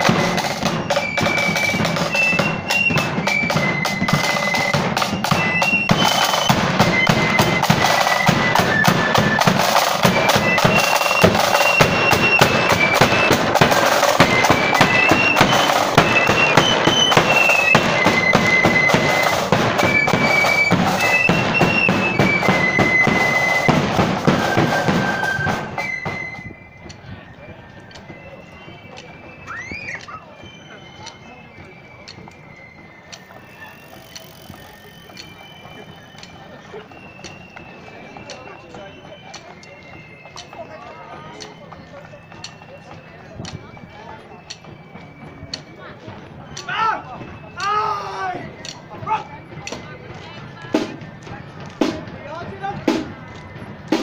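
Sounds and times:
rapid snare drums: 0:00.0 - 0:26.3, 0:48.5 - 0:54.0
flutes playing marching melody: 0:00.0 - 0:54.0.

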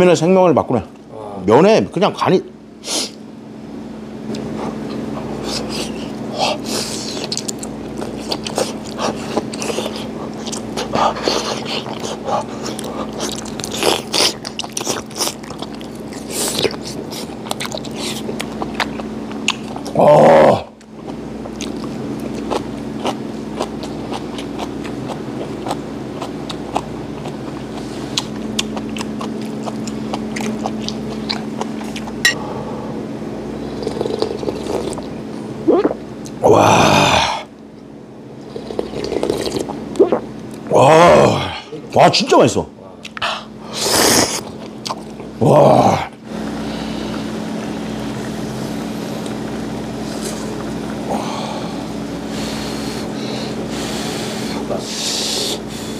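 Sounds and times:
person chewing and smacking: 0:04.3 - 0:20.0, 0:20.7 - 0:32.3, 0:33.7 - 0:36.4, 0:38.4 - 0:40.7, 0:44.2 - 0:45.4
broth slurped from bowl: 0:33.8 - 0:35.1, 0:38.5 - 0:40.2.

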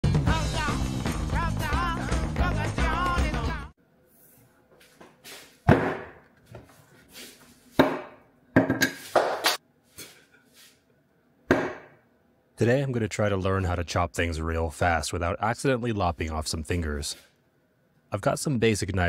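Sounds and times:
zucchini thudding onto wooden table: 0:05.7 - 0:06.2.

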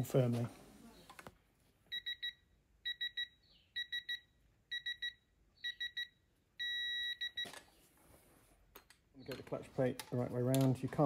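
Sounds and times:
short high-pitched beeps: 0:01.9 - 0:07.5.

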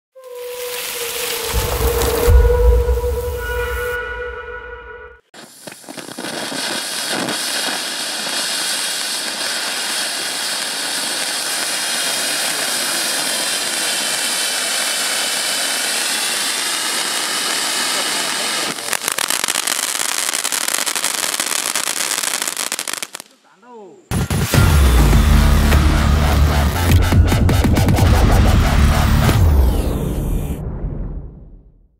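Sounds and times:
firework fountain hissing: 0:00.2 - 0:02.5, 0:05.4 - 0:23.4
sparks crackling: 0:00.2 - 0:02.6, 0:05.4 - 0:23.5.

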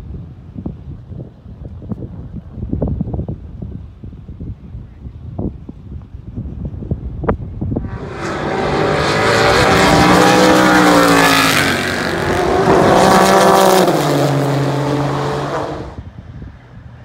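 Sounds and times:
race cars passing at speed: 0:07.8 - 0:16.1.

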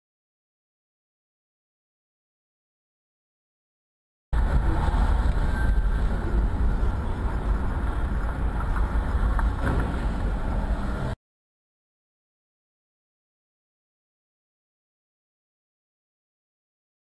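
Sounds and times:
car driving rumble: 0:04.4 - 0:11.2.

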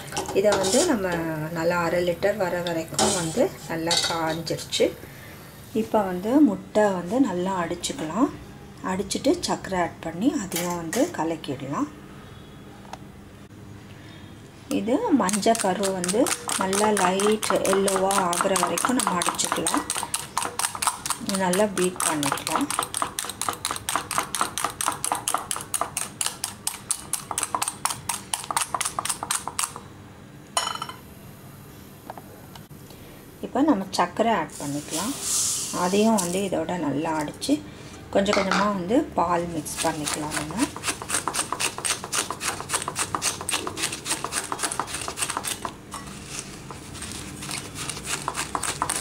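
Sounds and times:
whisk clacking against bowl: 0:00.5 - 0:01.0, 0:15.3 - 0:29.7, 0:39.7 - 0:45.7, 0:47.9 - 0:49.0.

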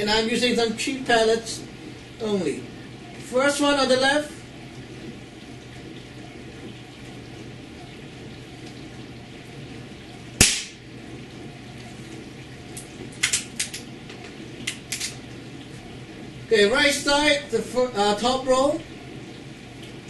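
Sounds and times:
air rifle shot crack: 0:10.4 - 0:10.8.

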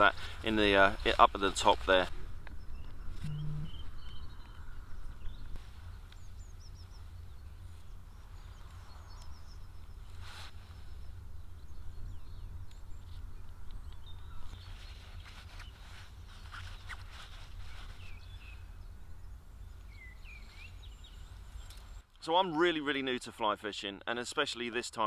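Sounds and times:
wind rumble on microphone: 0:01.0 - 0:21.8
small birds chirping: 0:02.4 - 0:22.1.

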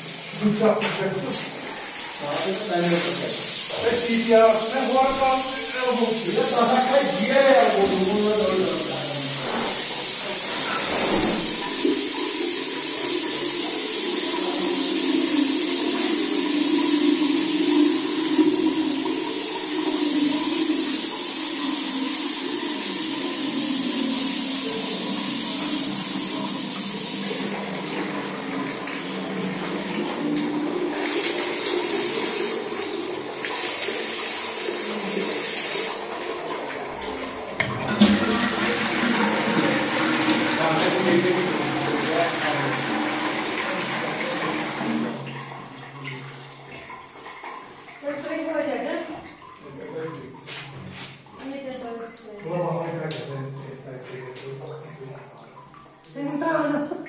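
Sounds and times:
shower water hissing: 0:00.0 - 0:36.3, 0:36.9 - 0:44.9.

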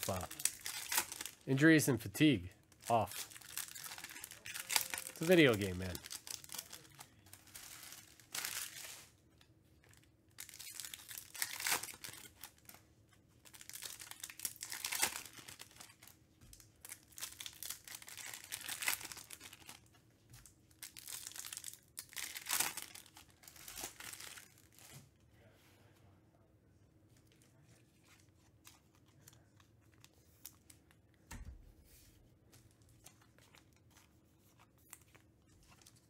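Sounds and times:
card wrappers tearing and crinkling: 0:00.0 - 0:09.1, 0:10.4 - 0:12.8, 0:13.4 - 0:16.1, 0:16.8 - 0:19.9, 0:20.8 - 0:24.9.

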